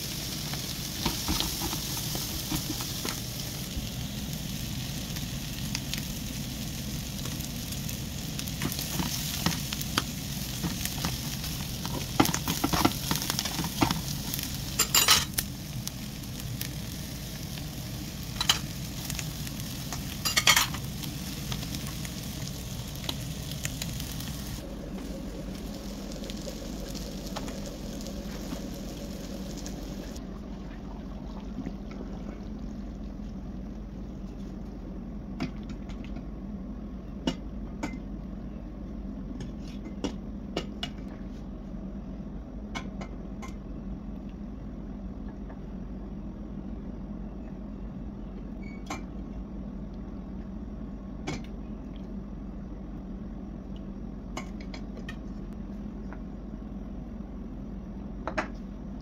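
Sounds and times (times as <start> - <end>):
frying sizzle: 0.0 - 30.2
steady low hum: 0.0 - 59.0.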